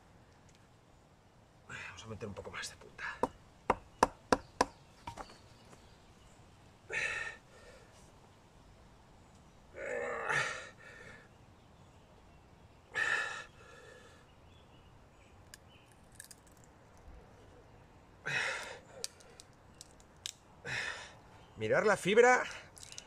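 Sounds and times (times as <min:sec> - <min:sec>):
man's strained exhalations: 0:06.9 - 0:07.9, 0:13.0 - 0:14.2, 0:18.2 - 0:19.1
wood cracking: 0:15.9 - 0:16.7.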